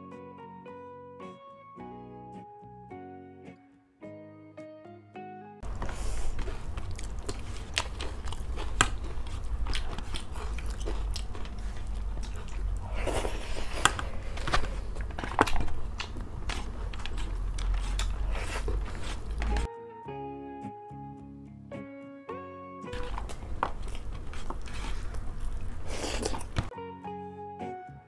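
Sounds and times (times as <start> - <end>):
people chewing and crunching: 5.6 - 19.7, 23.0 - 26.7.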